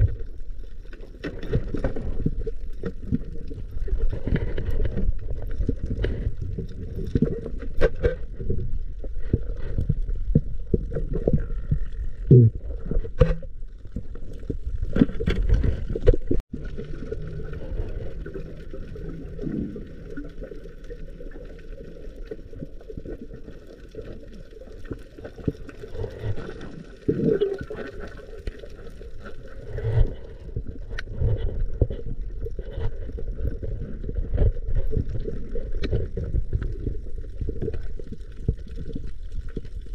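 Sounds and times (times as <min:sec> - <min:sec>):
underwater rush and gurgle: 0:00.0 - 0:39.9.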